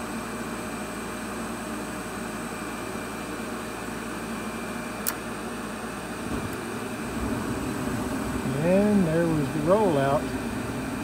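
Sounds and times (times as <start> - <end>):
furnace blower running: 0.0 - 11.0
sharp click: 5.0 - 5.2
burners lighting rumble: 6.2 - 11.0.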